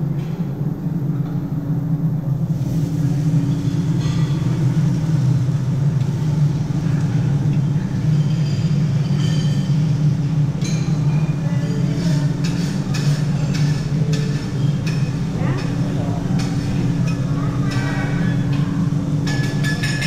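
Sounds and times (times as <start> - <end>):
ventilation fans rumbling: 0.0 - 20.0
dishes clinking: 8.0 - 9.9, 10.6 - 20.0.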